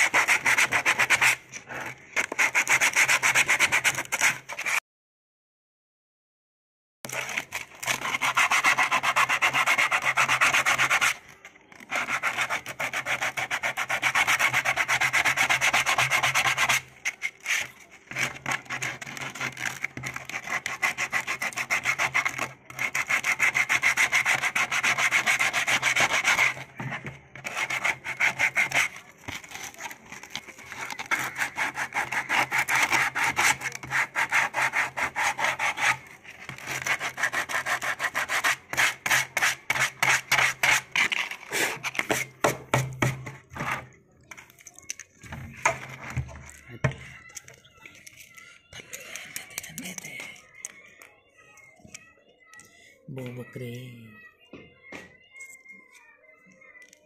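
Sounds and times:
rasping sanding strokes on plastic: 7.1s - 11.2s, 11.8s - 42.2s.

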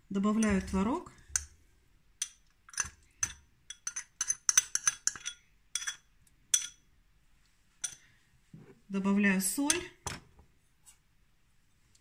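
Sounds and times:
spoon clinking on porcelain bowl: 2.2s - 6.8s.

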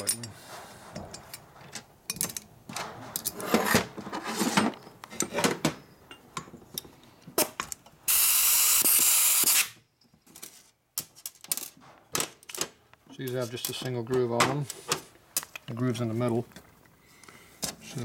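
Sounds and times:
spray hiss: 8.1s - 9.7s.

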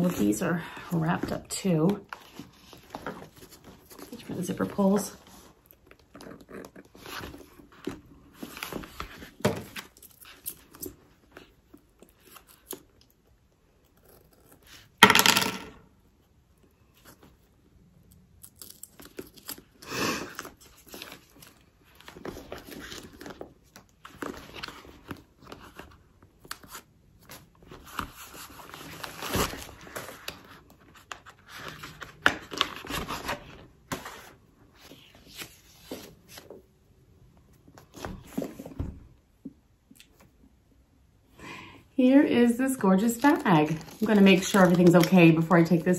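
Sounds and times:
paper and plastic wrapping tearing: 18.4s - 25.1s, 43.0s - 45.8s.

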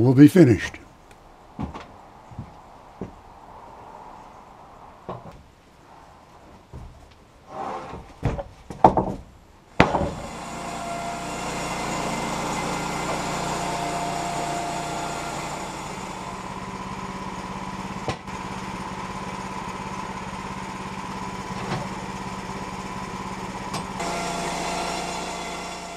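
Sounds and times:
sharp wooden knocks: 8.2s - 10.5s
band blade sawing board: 9.8s - 16.6s, 23.8s - 25.9s
sawmill gas engine running: 9.9s - 25.9s.

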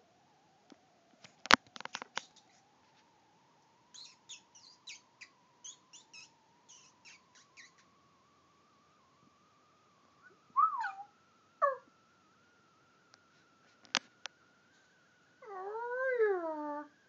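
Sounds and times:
faint steady whine: 0.0s - 17.0s
bird chirping: 2.0s - 2.6s, 3.8s - 8.4s, 9.9s - 11.9s.

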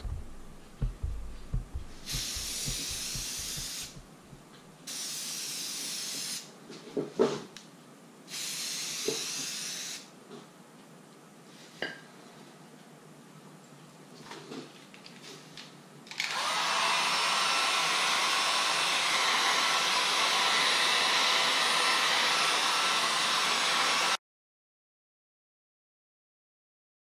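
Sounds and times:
aerosol spray can hissing: 0.0s - 4.1s, 8.3s - 10.0s.

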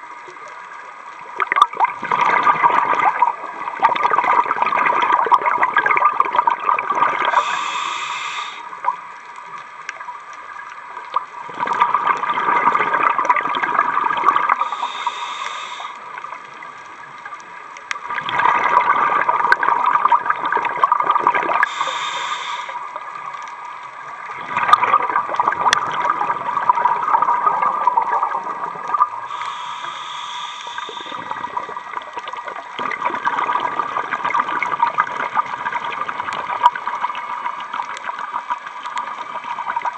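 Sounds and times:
exhaled bubbles gurgling: 0.0s - 39.9s
regulator inhale hiss: 7.2s - 8.9s, 14.5s - 16.3s, 21.6s - 23.1s, 29.2s - 31.8s.

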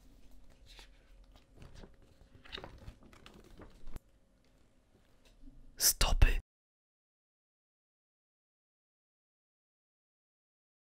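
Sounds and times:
paper rustling and crinkling: 0.0s - 4.0s.

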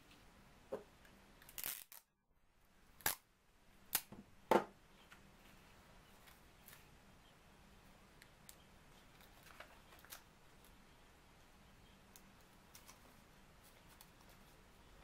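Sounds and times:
paper rustling: 9.0s - 10.7s.

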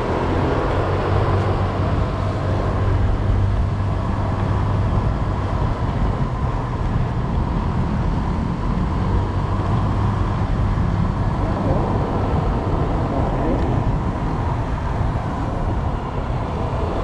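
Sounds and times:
road noise: 0.0s - 17.0s
wind rush on microphone: 0.0s - 17.0s.

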